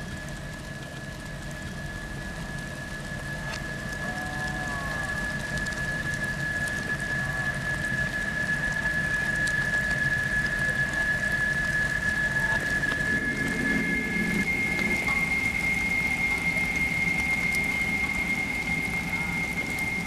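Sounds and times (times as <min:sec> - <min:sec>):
water rushing over rocks: 0:12.0 - 0:20.0
steady high tone: 0:12.5 - 0:20.0.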